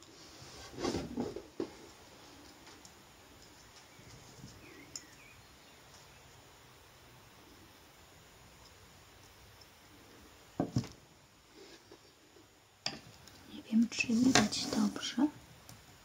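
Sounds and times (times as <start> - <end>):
objects clattering on wooden table: 10.6 - 11.0.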